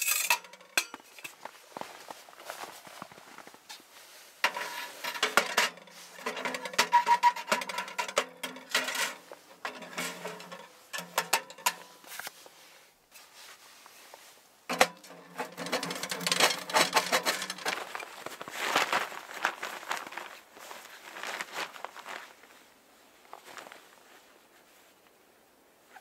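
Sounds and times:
metal clinks and scrapes: 0:00.0 - 0:01.4, 0:04.4 - 0:12.3, 0:14.7 - 0:18.1.

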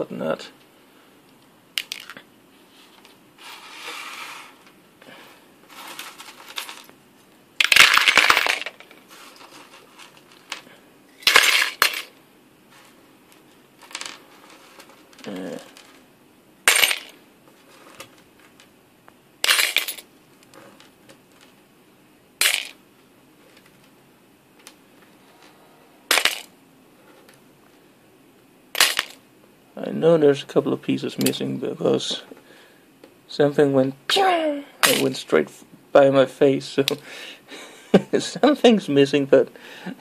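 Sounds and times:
metal parts rattling into bowl: 0:07.6 - 0:08.9, 0:11.2 - 0:12.1.

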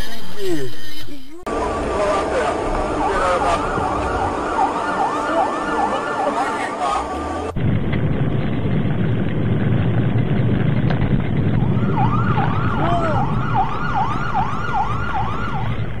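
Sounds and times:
emergency vehicle siren yelping: 0:01.5 - 0:07.6, 0:11.6 - 0:16.0
car and road noise rumble: 0:01.5 - 0:16.0.

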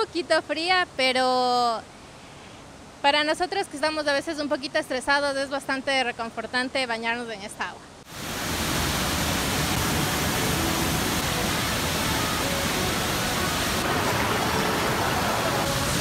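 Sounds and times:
waterfall rushing into pool: 0:08.1 - 0:16.0.

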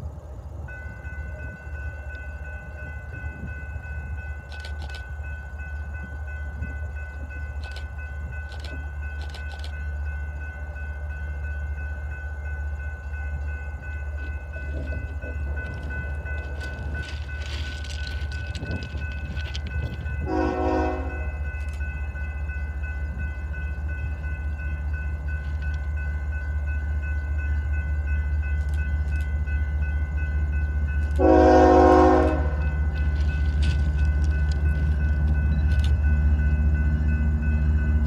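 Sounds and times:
diesel locomotive rumble: 0:00.0 - 0:38.0
train horn blast: 0:20.2 - 0:21.4, 0:31.2 - 0:32.7.

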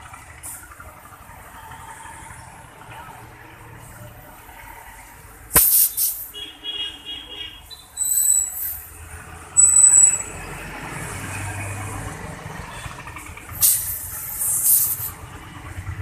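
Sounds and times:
compressed air hissing: 0:05.5 - 0:06.4, 0:08.0 - 0:08.9, 0:13.6 - 0:15.2.

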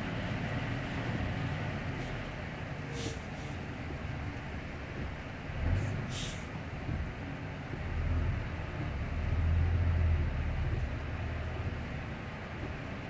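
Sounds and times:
truck diesel engine droning: 0:00.0 - 0:13.0
air hiss: 0:02.9 - 0:03.6, 0:06.1 - 0:06.5.

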